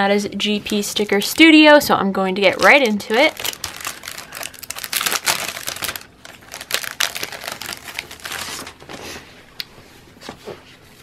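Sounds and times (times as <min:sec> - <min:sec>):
plastic sleeve crinkling: 0:02.4 - 0:09.0.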